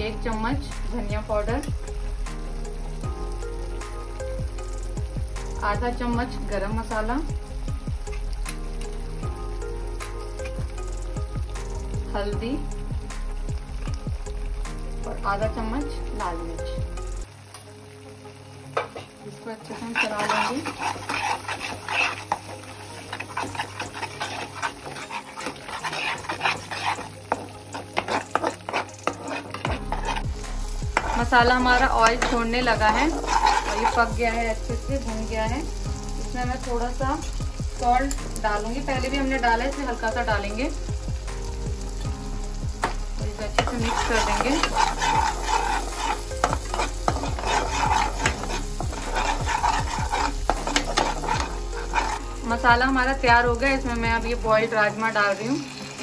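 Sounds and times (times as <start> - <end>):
paste sizzling in oil: 0.0 - 56.0
spoon scraping a pan: 18.8 - 35.8, 42.8 - 52.6.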